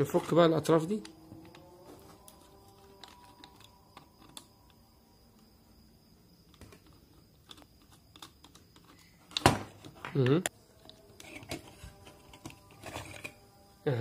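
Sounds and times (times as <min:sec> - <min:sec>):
screwdriver clicking and scraping: 0:02.3 - 0:04.6, 0:06.5 - 0:09.4, 0:10.8 - 0:13.4.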